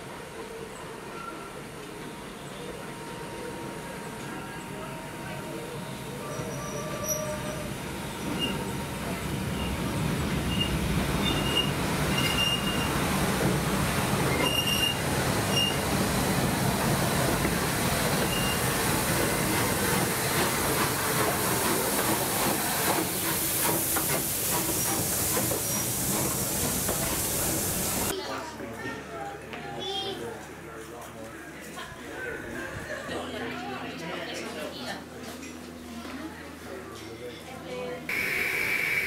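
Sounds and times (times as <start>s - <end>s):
train wheels rumbling on rails: 1.5s - 28.1s
high wheel squeals: 6.2s - 8.7s, 10.5s - 13.0s, 14.2s - 15.9s, 18.2s - 18.7s
steam hiss: 10.7s - 28.1s, 38.1s - 39.0s.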